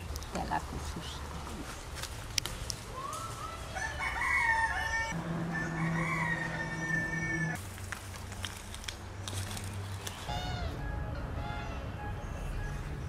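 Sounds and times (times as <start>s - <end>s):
rooster crowing: 3.7s - 7.6s
low steady hum: 5.1s - 7.8s.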